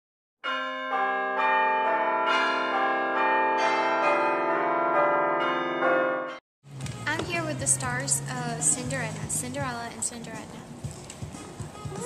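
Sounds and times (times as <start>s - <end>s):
bells ringing in a peal: 0.4s - 6.4s.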